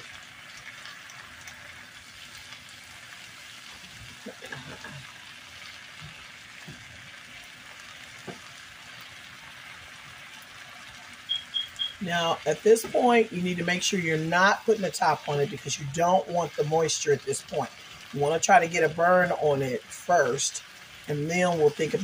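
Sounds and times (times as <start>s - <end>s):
vegetables sizzling in oil: 0.0s - 22.0s.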